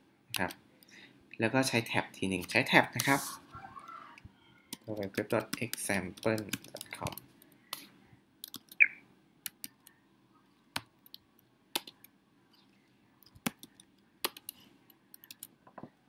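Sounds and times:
laptop keystrokes: 8.4s - 8.8s, 10.7s - 12.1s, 13.2s - 15.5s.

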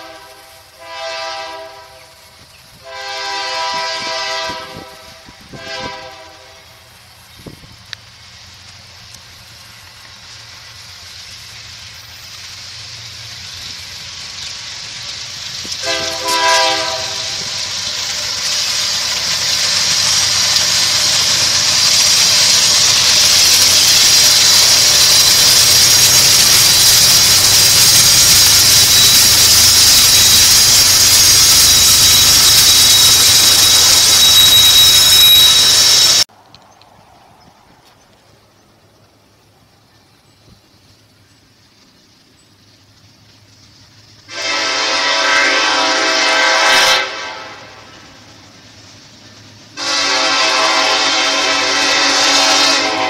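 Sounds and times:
locomotive air horn blast: 0.0s - 2.2s, 2.8s - 6.8s, 15.8s - 17.6s, 44.3s - 47.9s, 49.8s - 53.0s
diesel freight train passing: 0.0s - 53.0s
high whine of train cars: 0.0s - 53.0s.

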